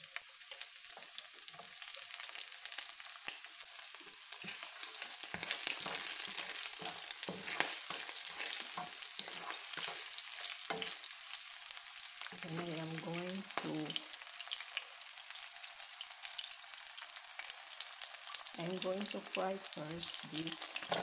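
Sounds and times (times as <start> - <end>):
food sizzling in hot oil: 0.0 - 21.0
spatula knocking and scraping pan: 4.4 - 11.0, 20.8 - 21.0.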